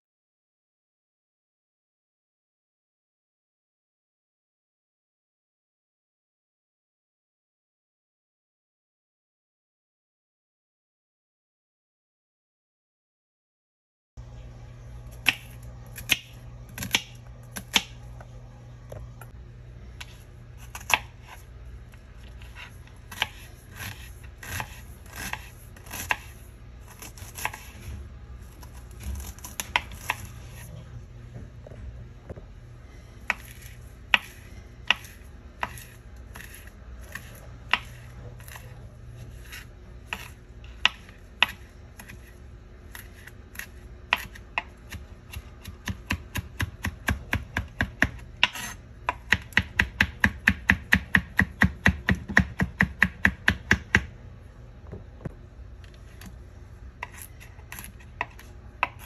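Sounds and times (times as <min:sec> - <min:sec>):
knife chopping on plastic board: 0:23.1 - 0:26.3, 0:27.0 - 0:27.7, 0:33.2 - 0:38.7, 0:39.3 - 0:42.3, 0:42.9 - 0:54.1.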